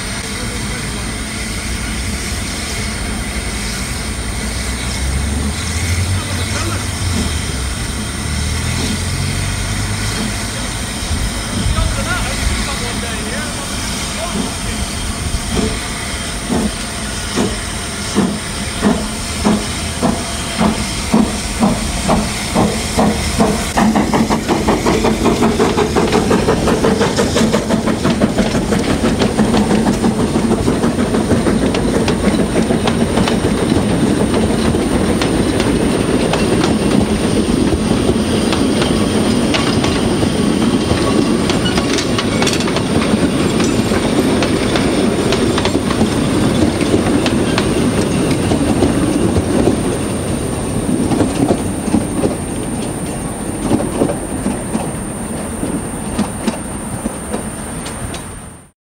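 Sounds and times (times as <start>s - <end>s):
steam locomotive exhaust chuffs: 0.0s - 58.4s
carriage wheels clattering on rails: 18.2s - 55.0s.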